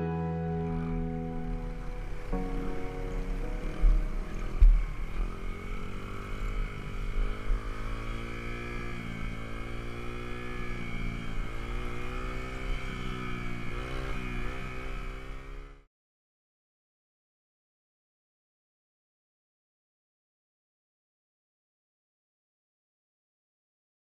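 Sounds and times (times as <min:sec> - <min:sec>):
dirt bike engine revving: 0:03.3 - 0:15.9
low thump: 0:03.8 - 0:05.0.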